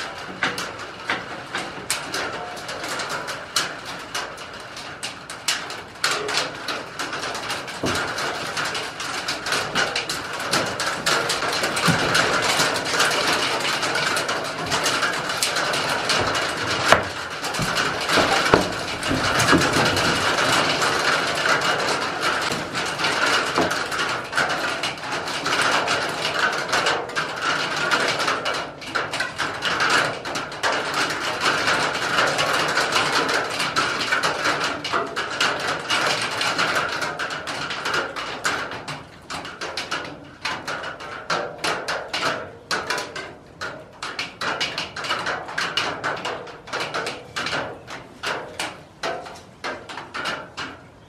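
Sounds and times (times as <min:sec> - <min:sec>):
heavy rain on wooden roof: 0:00.0 - 0:51.0
sharp knocks: 0:14.4 - 0:21.0.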